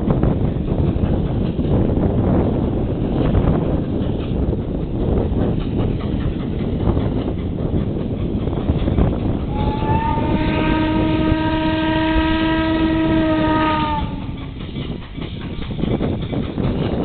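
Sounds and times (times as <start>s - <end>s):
wind buffeting microphone: 0.0s - 17.0s
steam locomotive whistle: 9.5s - 14.4s.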